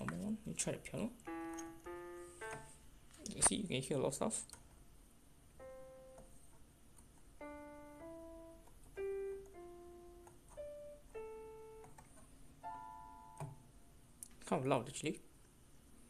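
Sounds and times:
keytar piano notes: 1.2s - 2.8s, 5.5s - 6.5s, 7.3s - 13.6s.

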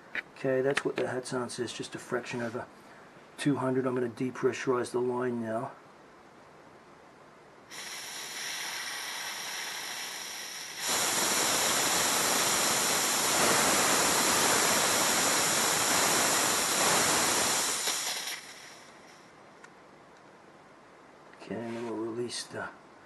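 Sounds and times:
compressed air hissing: 7.7s - 19.3s.

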